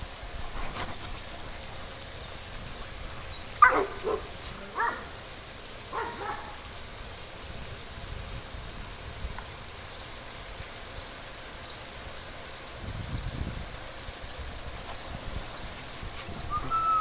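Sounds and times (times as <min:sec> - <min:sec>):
dogs barking: 0:03.6 - 0:05.2, 0:05.9 - 0:06.6.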